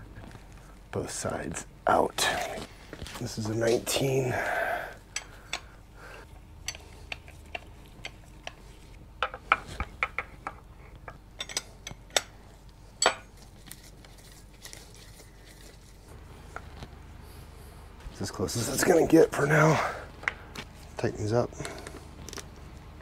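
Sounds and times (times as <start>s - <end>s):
wrenches clinking on metal: 11.4s - 12.3s.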